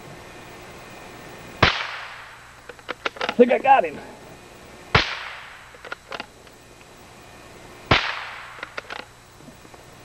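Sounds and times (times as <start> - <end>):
rifle shot with echo: 1.6 - 2.5, 4.9 - 5.7, 7.9 - 8.8.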